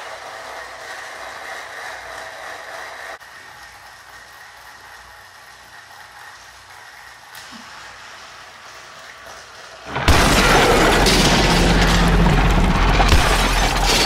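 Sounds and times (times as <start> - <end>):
toy train running: 0.0 - 10.0
loud explosion-like crash: 9.9 - 14.0.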